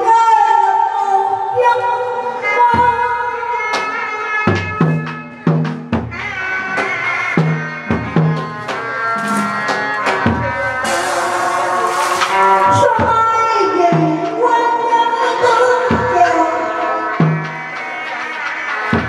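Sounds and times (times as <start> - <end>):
low pitched drum strokes: 9.2 - 13.4.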